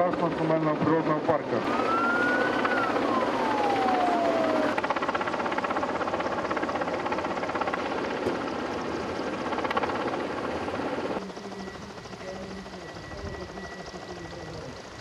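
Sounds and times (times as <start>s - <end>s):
helicopter rotor beating: 0.0s - 15.0s
siren wailing: 1.6s - 5.0s, 11.2s - 14.8s.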